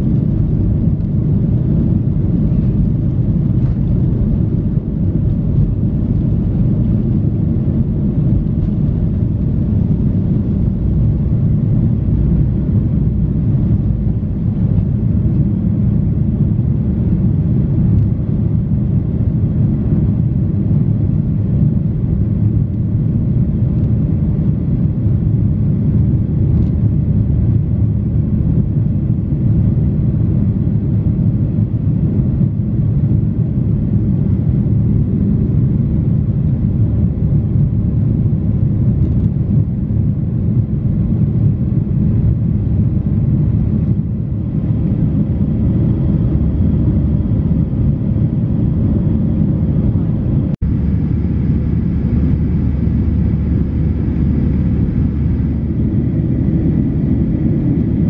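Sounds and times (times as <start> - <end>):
jet engine rumble: 0.0 - 58.0
rushing air: 43.5 - 58.0.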